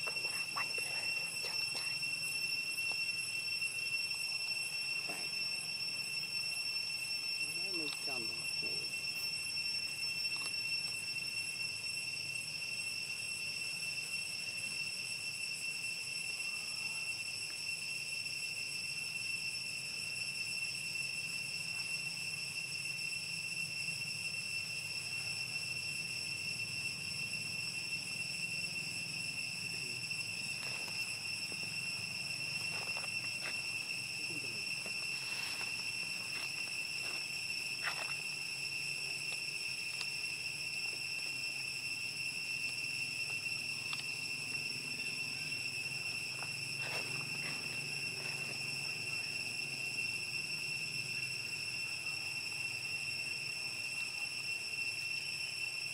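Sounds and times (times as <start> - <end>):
insects droning: 0.0 - 55.9.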